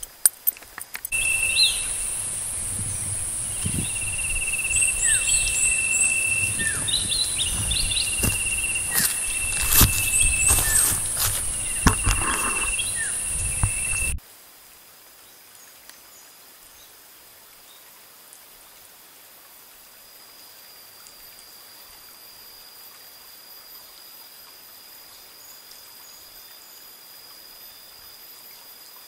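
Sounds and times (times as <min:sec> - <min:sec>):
birds chirping: 0:01.1 - 0:14.2
high-pitched insect whine: 0:01.1 - 0:14.2
rasping insect trill: 0:01.1 - 0:14.2.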